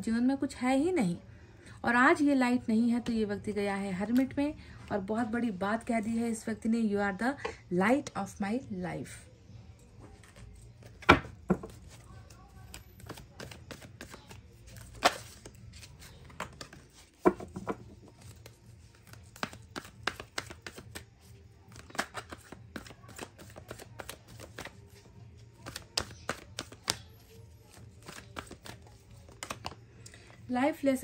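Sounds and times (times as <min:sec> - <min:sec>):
cards shuffling: 0:10.1 - 0:29.8.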